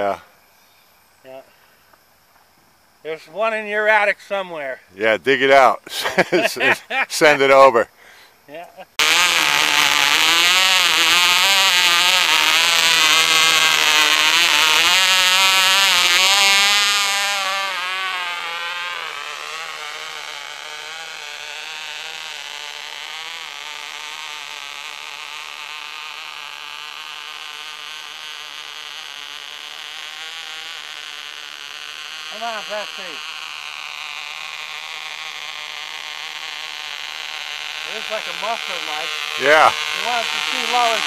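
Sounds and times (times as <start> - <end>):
model engine high-pitched buzz: 8.9 - 41.0.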